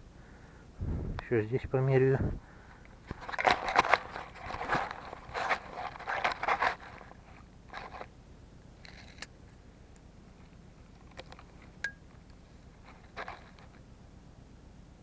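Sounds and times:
straw and soil crunching: 0:03.1 - 0:08.1.

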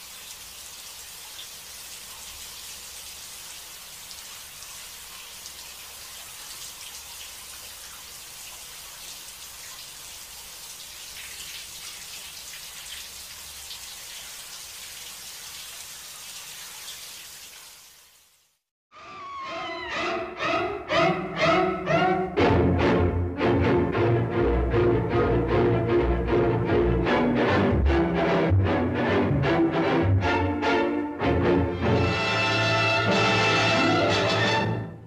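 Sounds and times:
shower running: 0:00.0 - 0:18.7.

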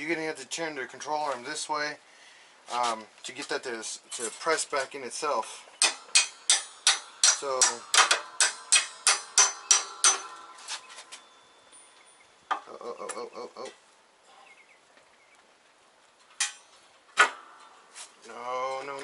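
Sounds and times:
hammer tapping on metal: 0:05.8 - 0:10.4
sharp hammer blows: 0:05.8 - 0:11.2.

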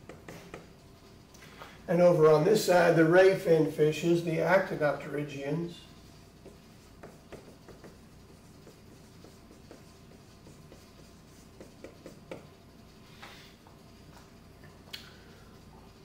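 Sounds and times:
marker squeaking on whiteboard: 0:06.0 - 0:12.6.

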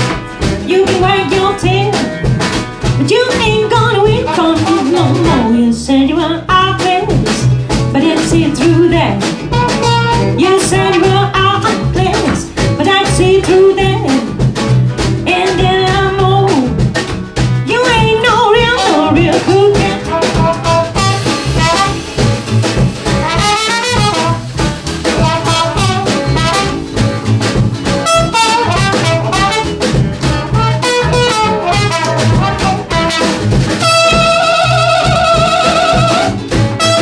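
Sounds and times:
drums: 0:00.0 - 0:37.0
plucked upright double bass: 0:00.0 - 0:37.0
trumpet lead: 0:09.5 - 0:11.6, 0:18.7 - 0:27.3, 0:27.9 - 0:37.0.

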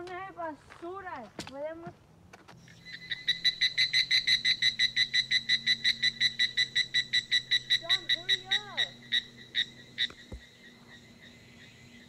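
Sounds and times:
small animal calling in rapid pulses: 0:02.7 - 0:12.0.

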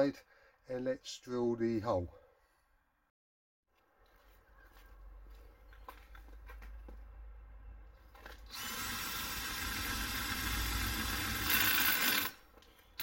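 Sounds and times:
power drill cutting sheet metal: 0:08.5 - 0:12.4.

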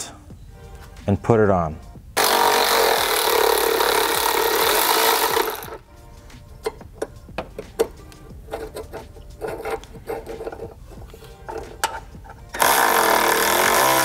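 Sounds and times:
cordless power driver spinning: 0:02.2 - 0:05.8, 0:08.7 - 0:14.0.

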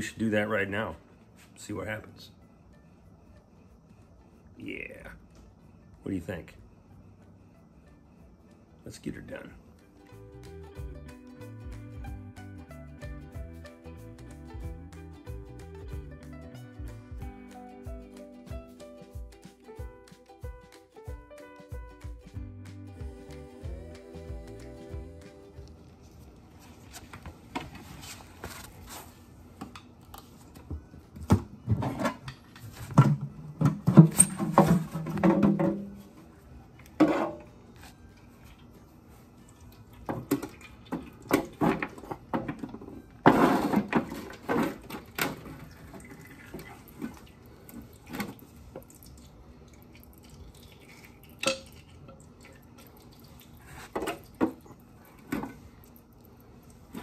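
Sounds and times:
metal clanks and scrapes: 0:33.8 - 0:35.9, 0:37.0 - 0:37.5, 0:43.2 - 0:44.9.

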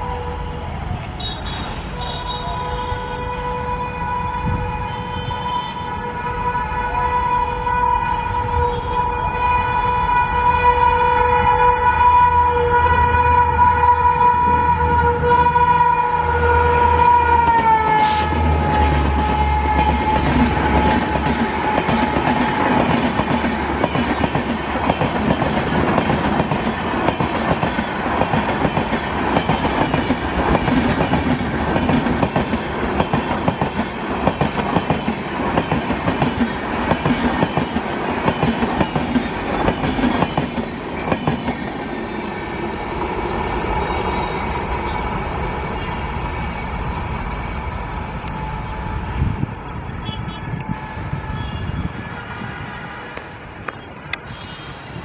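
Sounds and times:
train wheels clattering over rails: 0:17.6 - 0:47.3.

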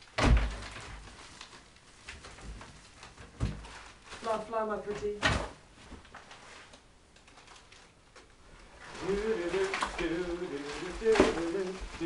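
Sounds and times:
man singing wordlessly: 0:08.9 - 0:12.0.

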